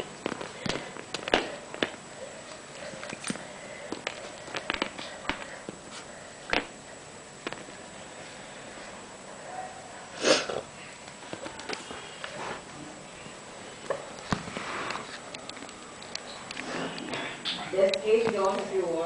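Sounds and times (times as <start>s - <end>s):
claws tapping on tile floor: 0.0s - 2.0s, 3.0s - 5.6s.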